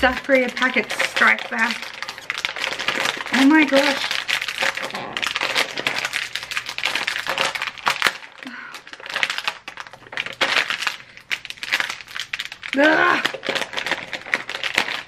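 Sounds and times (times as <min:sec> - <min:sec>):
plastic snack packet crinkling: 0:00.0 - 0:15.0
person straining vocal sound: 0:04.7 - 0:06.1, 0:12.7 - 0:13.5.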